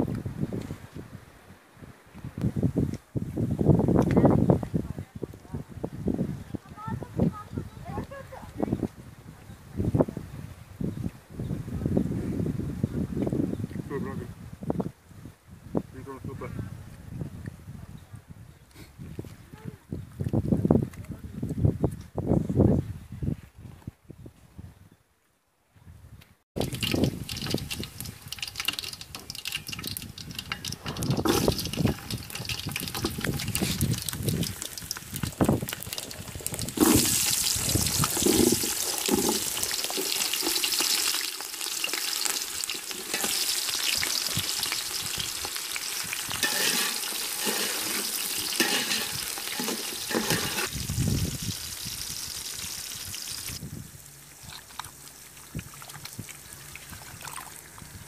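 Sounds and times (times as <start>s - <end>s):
food sizzling in hot oil: 26.6s - 53.6s.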